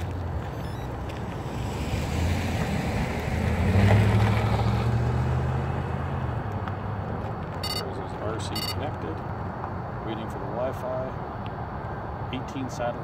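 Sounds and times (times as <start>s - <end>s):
car driving past: 1.4s - 6.4s.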